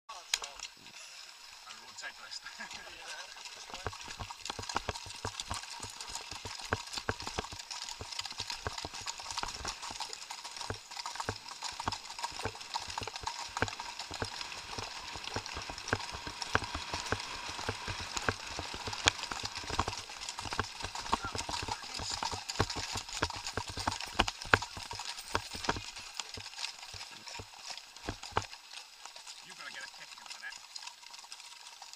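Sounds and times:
horse hooves on gravel: 0:02.5 - 0:31.9.

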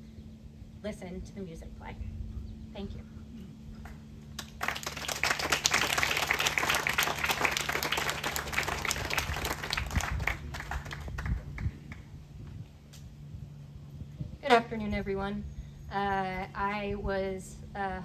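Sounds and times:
audience applauding: 0:04.4 - 0:11.7.

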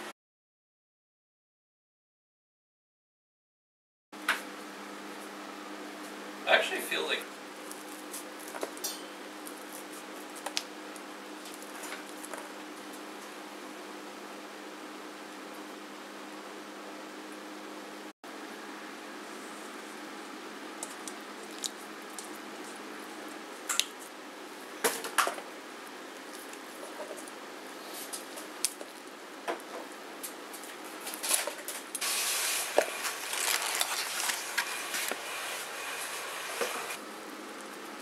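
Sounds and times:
hissing splashy noise: 0:32.0 - 0:37.0
mushrooms sloshed in bowl of water: 0:32.0 - 0:37.0.

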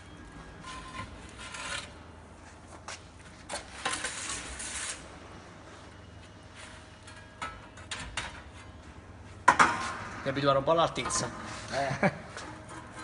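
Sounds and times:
metal pizza peel scraping: 0:00.6 - 0:02.0, 0:03.7 - 0:05.1.

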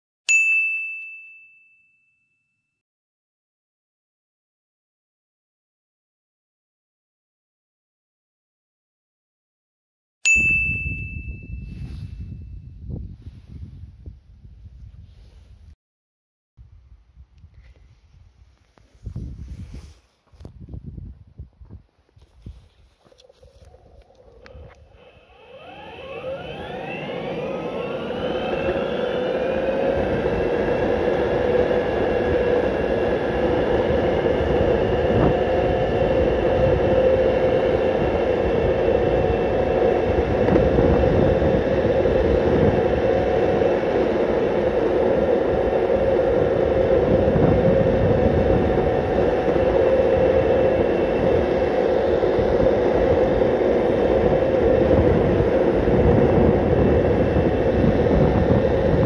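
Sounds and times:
wheels rumbling on road: 0:22.5 - 0:59.0
electric motor whine: 0:23.0 - 0:59.0.

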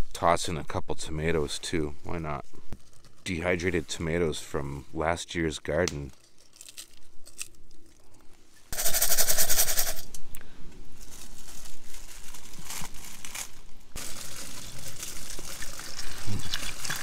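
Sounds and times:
dried vegetables rattling in pot: 0:08.7 - 0:10.2, 0:11.0 - 0:17.0
water pouring into a pot: 0:14.0 - 0:17.0.

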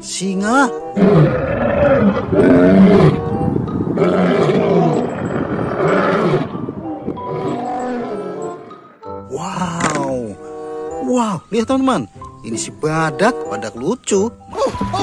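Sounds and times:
lions roaring: 0:01.0 - 0:08.7.

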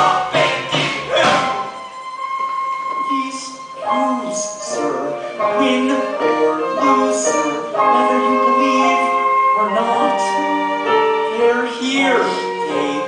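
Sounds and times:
people singing show tune: 0:00.0 - 0:01.6, 0:03.1 - 0:09.0
piano accompaniment: 0:00.0 - 0:13.0.

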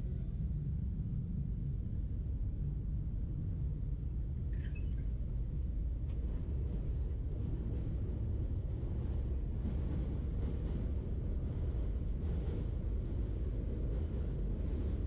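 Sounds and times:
faint high squeak: 0:04.5 - 0:05.1.

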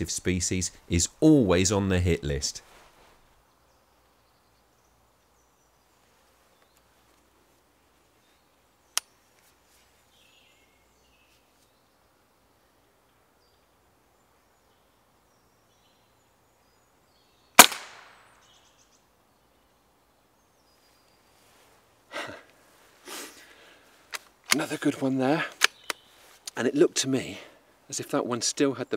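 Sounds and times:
air rifle shot: 0:17.6 - 0:18.2
faint bird calls: 0:25.3 - 0:26.4.

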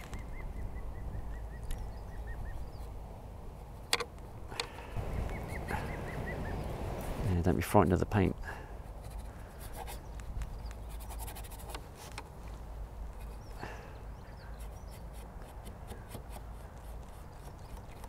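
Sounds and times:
brush scraping paint on board: 0:09.0 - 0:10.0, 0:10.6 - 0:12.2.

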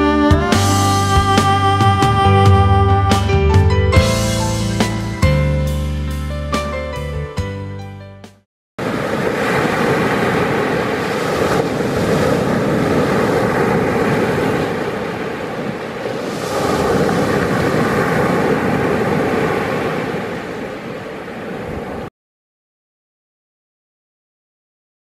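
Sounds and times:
waves breaking on pebbles: 0:08.8 - 0:22.1.

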